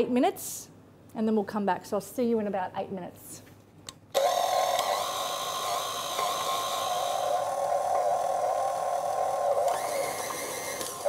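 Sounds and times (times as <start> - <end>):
stand mixer motor humming: 4.2 - 11.0.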